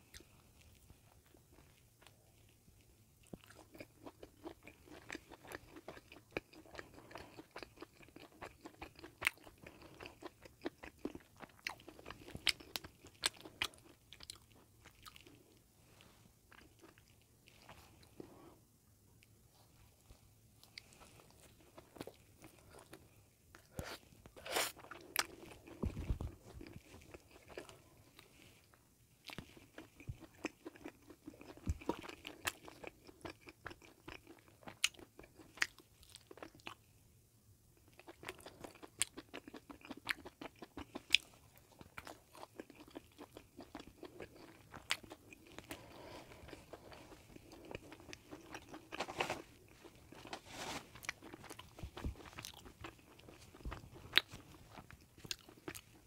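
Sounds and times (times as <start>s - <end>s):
chewing: 0.0s - 15.6s, 16.5s - 18.4s, 20.6s - 36.8s, 37.8s - 56.0s.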